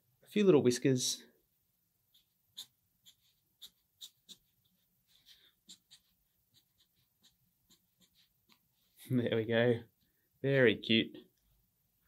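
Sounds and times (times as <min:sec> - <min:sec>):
pen scratching on paper: 0:02.1 - 0:08.6.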